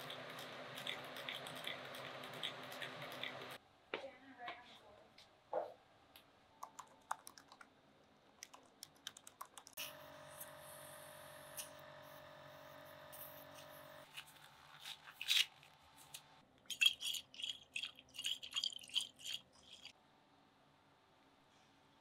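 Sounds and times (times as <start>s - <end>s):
lab instrument humming: 9.8s - 14.1s.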